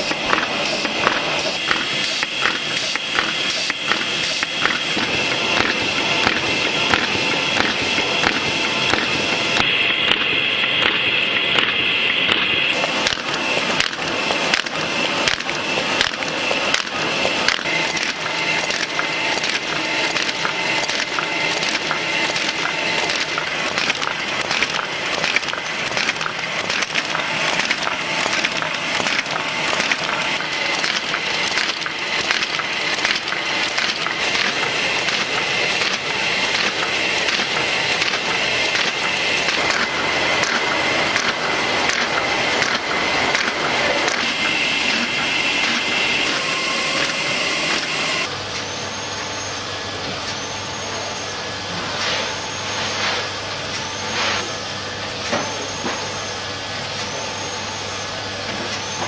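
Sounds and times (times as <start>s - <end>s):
paper machine clattering: 0.0s - 10.3s, 12.4s - 48.3s
machine high whine: 0.0s - 59.0s.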